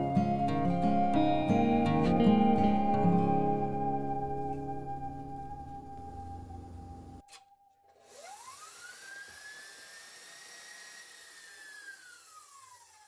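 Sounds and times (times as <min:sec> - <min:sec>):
background music: 0:00.0 - 0:07.5
stand mixer motor whining: 0:08.0 - 0:13.0.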